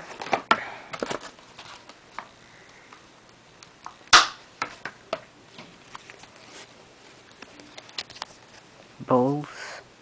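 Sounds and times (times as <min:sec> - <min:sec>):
packaging rustle: 0:00.0 - 0:02.3.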